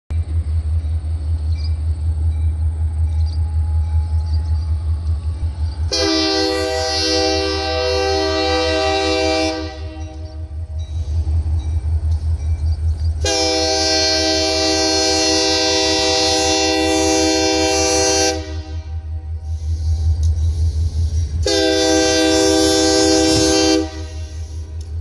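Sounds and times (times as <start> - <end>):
locomotive air horn blasts: 5.9 - 10.6, 13.2 - 19.6, 21.4 - 24.8.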